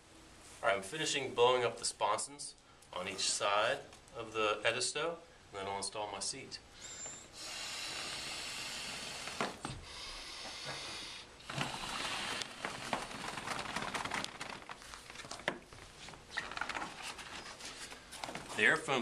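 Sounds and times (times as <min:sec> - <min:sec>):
air hissing: 0:06.8 - 0:12.9.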